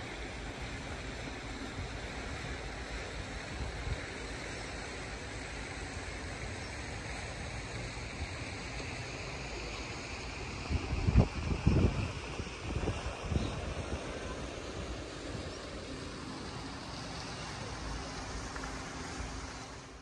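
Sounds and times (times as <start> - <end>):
constant hiss: 0.0 - 20.0
wind gusting on microphone: 10.4 - 15.8.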